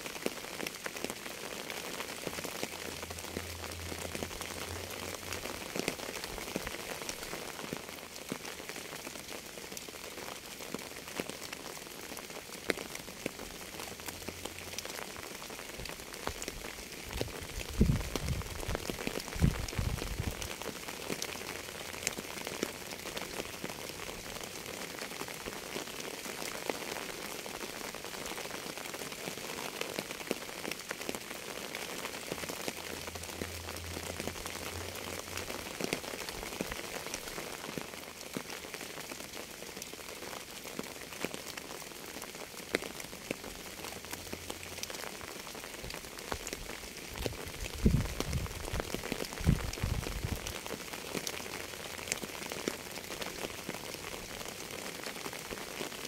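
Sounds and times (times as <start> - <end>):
steady rain falling: 0.0 - 56.0
raindrops ticking: 0.1 - 56.0.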